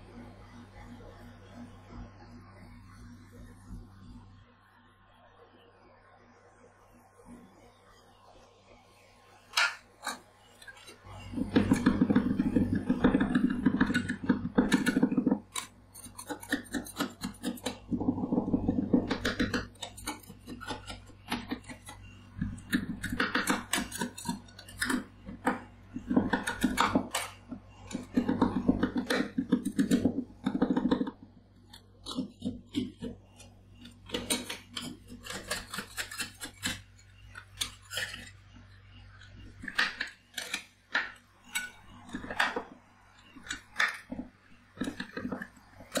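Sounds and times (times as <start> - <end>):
steady low hum: 0.0 - 46.0
metal spatulas chopping on steel: 11.6 - 17.8, 19.1 - 21.9, 26.2 - 30.0, 33.8 - 37.0.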